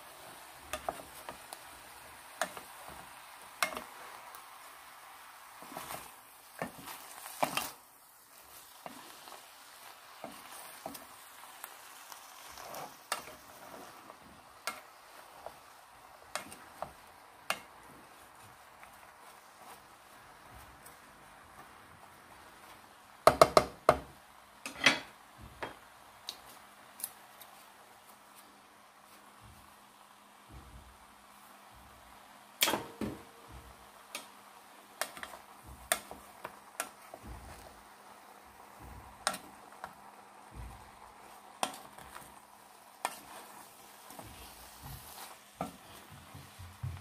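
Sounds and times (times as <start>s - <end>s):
faint sizzle: 0.0s - 47.0s
wooden spatula stirring food: 0.0s - 47.0s
utensil tapping a pot: 0.7s - 1.5s, 3.6s - 3.9s, 23.2s - 25.0s, 38.8s - 40.0s
spatula knocking against pot: 23.3s - 24.1s.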